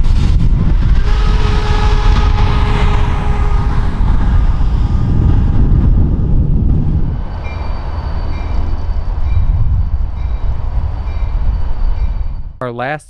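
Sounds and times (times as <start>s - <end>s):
train rumbling past: 0.0s - 12.6s.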